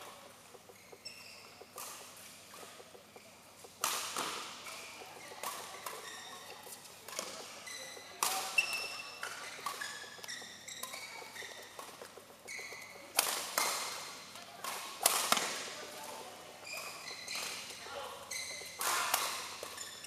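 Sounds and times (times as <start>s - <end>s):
shoes squeaking on floor: 0.0s - 14.2s, 16.6s - 20.0s
rackets hitting shuttlecock: 0.0s - 20.0s.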